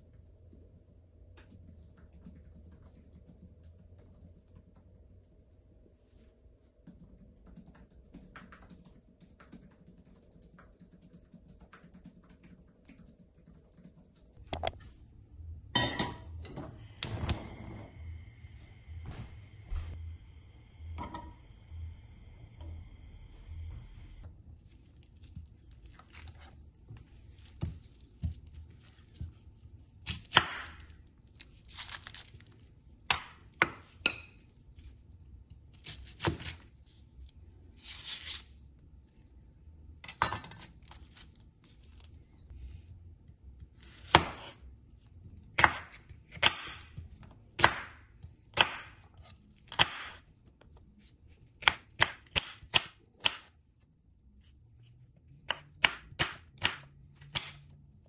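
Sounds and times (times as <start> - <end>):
onion skin crinkly tearing: 24.6 - 26.7, 31.2 - 32.8, 35.7 - 38.6, 40.8 - 42.2
knife chopping on board: 51.6 - 53.5.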